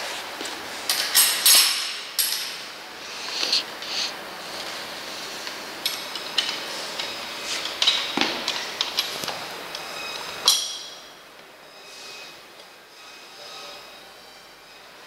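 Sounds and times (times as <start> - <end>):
metal bolt clinking on steel frame: 0.9 - 2.7.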